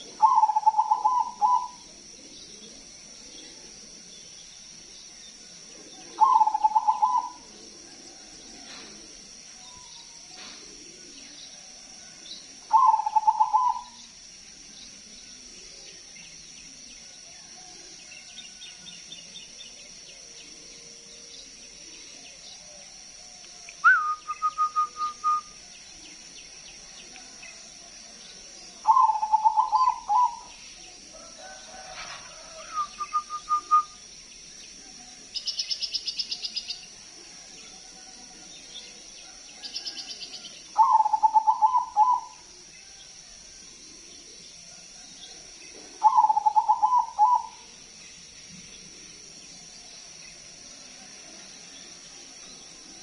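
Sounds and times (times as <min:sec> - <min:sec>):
dove cooing: 0:00.0 - 0:14.1, 0:28.4 - 0:34.0, 0:39.2 - 0:43.0, 0:44.0 - 0:47.8.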